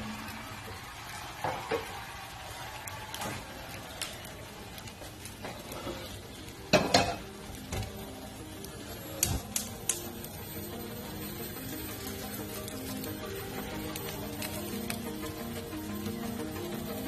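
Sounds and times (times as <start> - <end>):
fish sizzling in a frying pan: 0.0 - 17.0
kitchenware clinks and knocks: 6.7 - 7.2.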